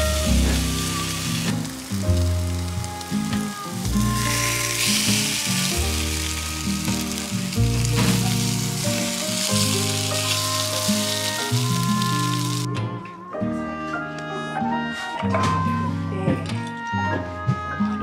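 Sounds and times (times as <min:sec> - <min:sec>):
food sizzling in frying pan: 0:00.0 - 0:12.7
background music: 0:00.0 - 0:18.0.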